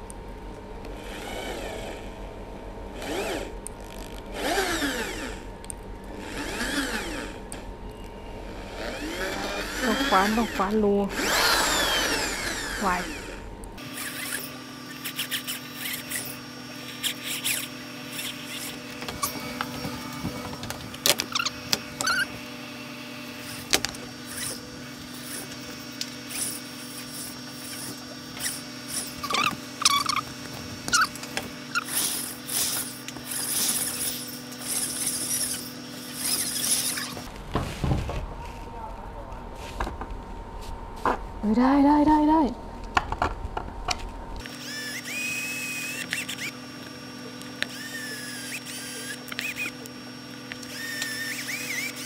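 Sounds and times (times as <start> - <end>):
steady low hum: 0.0 - 52.0
short squeaks: 13.8 - 22.4, 23.4 - 37.3, 44.5 - 46.6.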